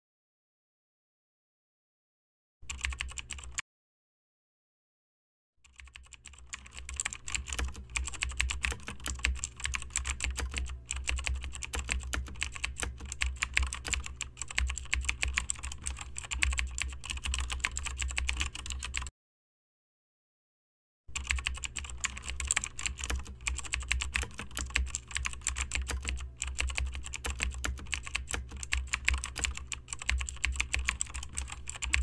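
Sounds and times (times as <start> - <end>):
typing on computer keyboard: 2.7 - 3.6, 5.7 - 19.1, 21.1 - 32.0.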